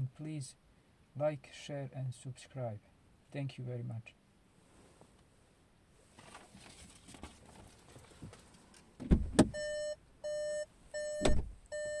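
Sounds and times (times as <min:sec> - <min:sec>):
heavy thumps: 0:09.0 - 0:09.6
car warning chime beeping: 0:09.4 - 0:12.0.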